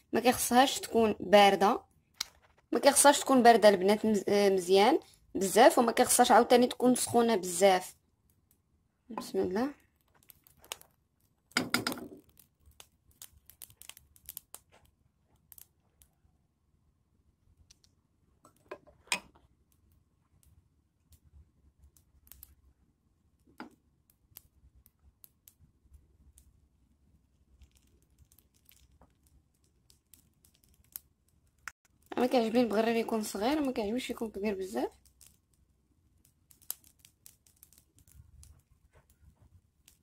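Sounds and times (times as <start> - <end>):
pancake cooking clicks and crackles: 9.8 - 16.2, 17.6 - 40.0.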